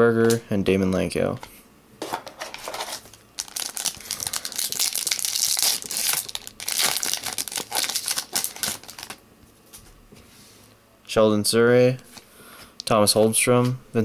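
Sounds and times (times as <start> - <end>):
foil wrapper crinkling and tearing: 2.6 - 9.2.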